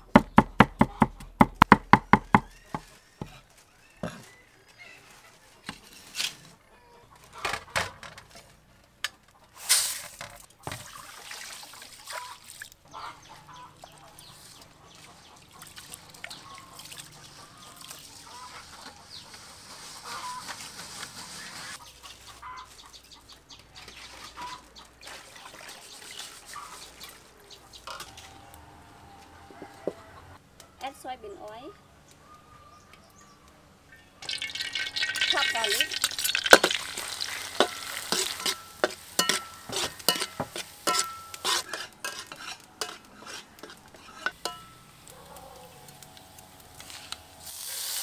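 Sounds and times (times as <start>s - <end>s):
cleaver chopping on wooden board: 0.2s - 2.6s
chickens clucking: 2.4s - 9.6s, 12.1s - 30.7s, 35.3s - 46.0s
hands washing rice in water: 10.6s - 12.8s, 14.0s - 21.6s, 23.9s - 27.3s.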